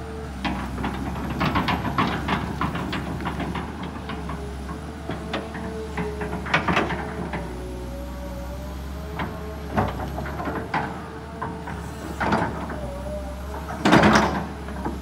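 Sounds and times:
excavator engine drone and whine: 0:00.0 - 0:15.0.

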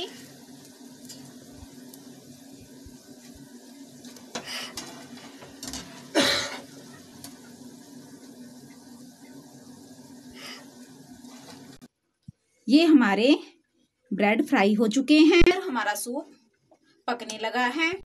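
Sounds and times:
oil sizzling: 0:00.0 - 0:11.9.

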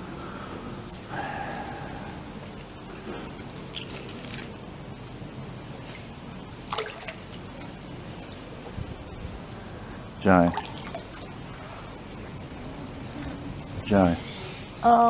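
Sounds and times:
water dripping and sloshing: 0:05.9 - 0:08.3, 0:10.3 - 0:12.0.

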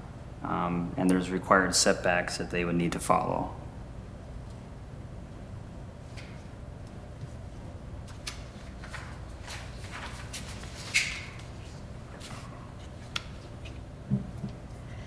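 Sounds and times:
room hum: 0:00.0 - 0:15.0
papers being handled: 0:08.1 - 0:14.6.

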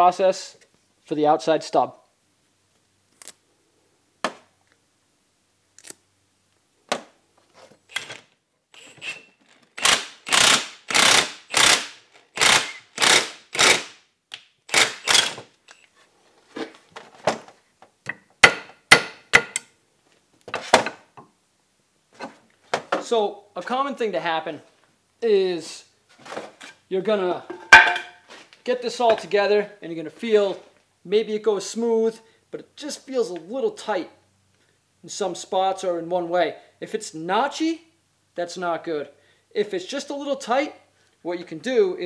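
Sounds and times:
impact wrench bursts: 0:07.9 - 0:14.0, 0:14.7 - 0:15.5.

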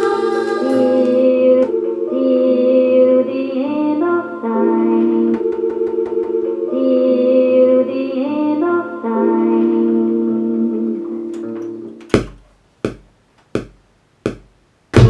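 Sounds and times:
filtered female vocal sample: 0:00.0 - 0:11.0
drum hits: 0:12.2 - 0:15.0.

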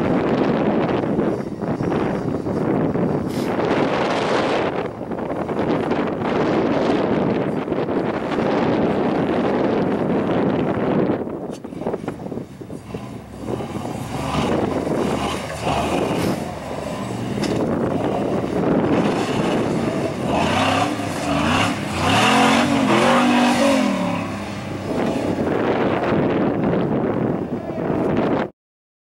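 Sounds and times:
buggy engine revving: 0:00.0 - 0:28.4.

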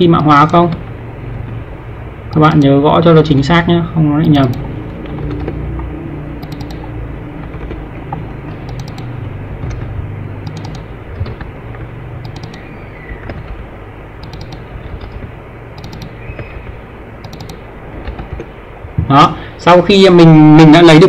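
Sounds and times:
low background rumble: 0:00.0 - 0:21.0
keyboard keys clicking: 0:04.2 - 0:05.6, 0:06.4 - 0:18.5.

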